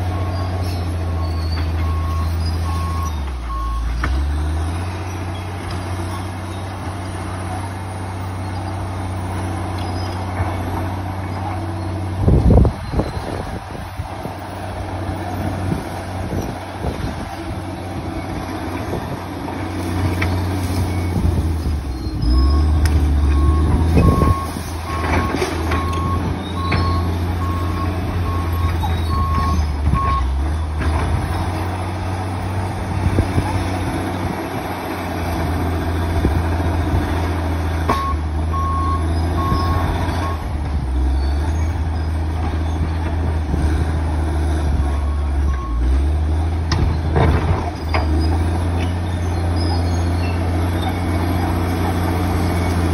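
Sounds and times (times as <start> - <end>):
bulldozer diesel engine running: 0.0 - 52.9
reversing alarm beeps: 0.1 - 4.0, 21.9 - 30.3, 37.9 - 40.4.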